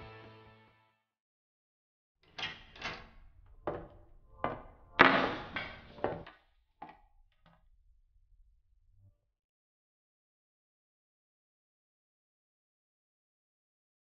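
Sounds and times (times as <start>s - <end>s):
knocks and clunks with ringing: 2.4s - 6.3s.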